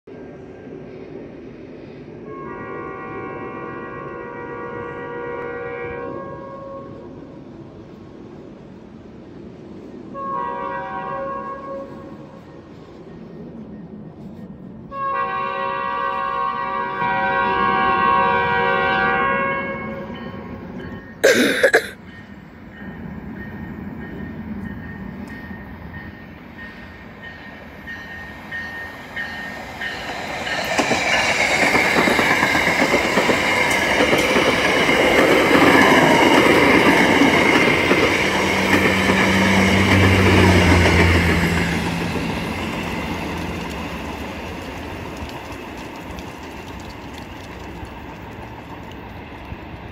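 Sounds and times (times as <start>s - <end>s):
diesel locomotive engine hum: 0.1s - 49.9s
train cars rumbling over rails: 0.1s - 49.9s
train horn: 2.2s - 7.2s, 10.1s - 12.4s, 14.9s - 20.4s, 38.4s - 42.0s.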